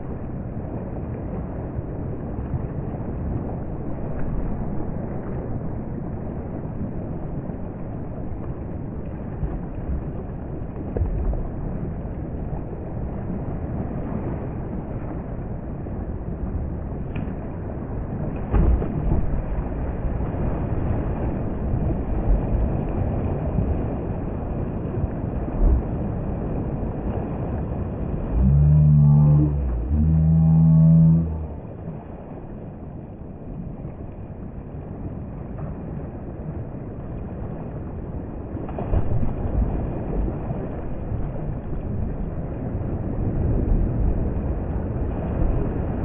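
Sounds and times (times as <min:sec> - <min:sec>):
paddle knocks and splashes: 0:10.8 - 0:11.8, 0:17.0 - 0:24.0, 0:38.6 - 0:41.8
loud low tone: 0:28.3 - 0:31.8.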